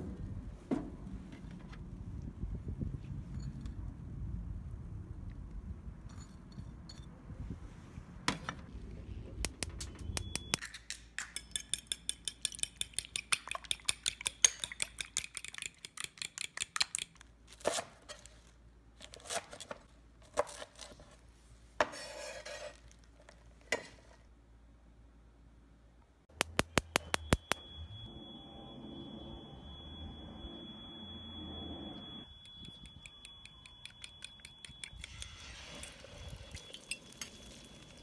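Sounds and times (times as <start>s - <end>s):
fork beating eggs in bowl: 11.4s - 17.1s.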